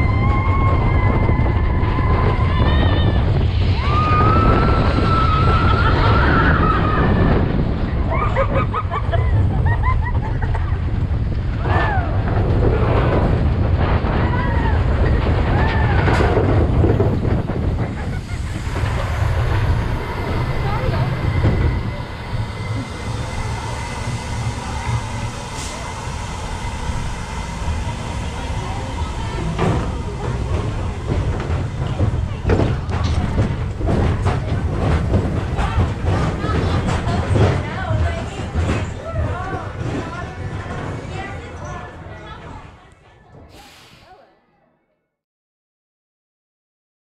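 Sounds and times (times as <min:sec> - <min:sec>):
wind buffeting microphone: 0:00.0 - 0:42.7
roller coaster cars rumbling on track: 0:00.0 - 0:44.4
high-pitched squeal: 0:17.9 - 0:32.0.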